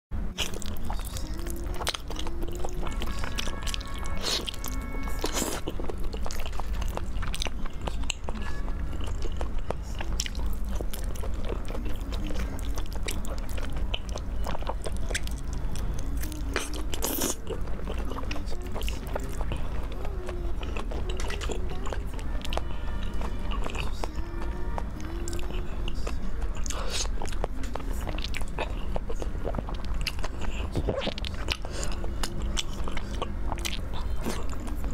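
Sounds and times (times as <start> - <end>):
close chewing and biting: 0.2 - 34.9
background music: 1.1 - 13.0.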